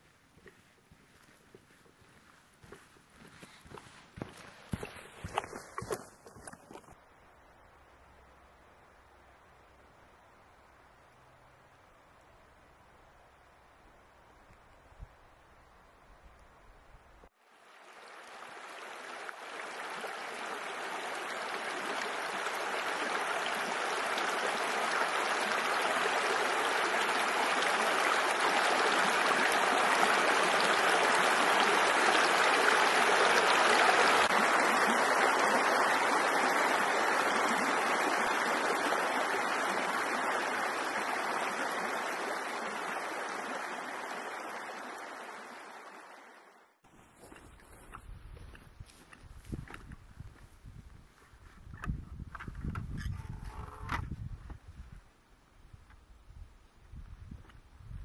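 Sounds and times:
stream running over stones: 0:00.0 - 0:07.0, 0:17.4 - 0:47.5.

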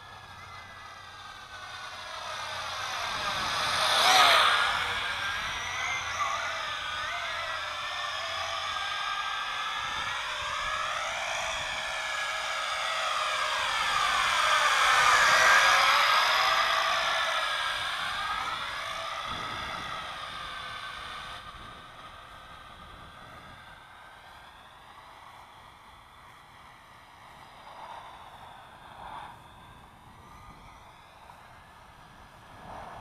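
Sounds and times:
quadcopter motors whining: 0:00.0 - 0:33.0.

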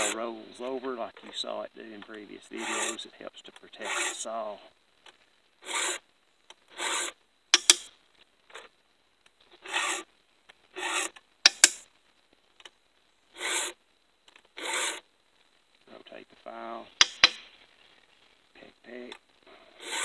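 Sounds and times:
file rasping on chainsaw chain: 0:02.6 - 0:03.0, 0:03.8 - 0:04.2, 0:05.6 - 0:06.0, 0:06.8 - 0:07.8, 0:10.8 - 0:11.8, 0:14.6 - 0:15.0, 0:19.8 - 0:20.0
sharp taps: 0:07.6 - 0:07.9, 0:11.5 - 0:11.8, 0:17.0 - 0:17.5.

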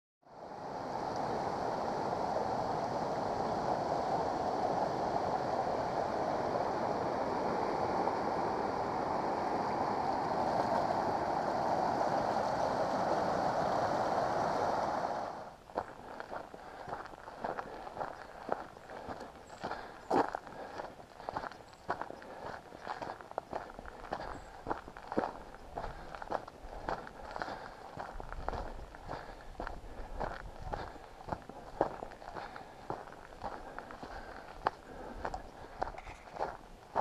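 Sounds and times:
flowing water rushing: 0:00.3 - 0:37.0
footsteps on dirt trail: 0:15.6 - 0:37.0.

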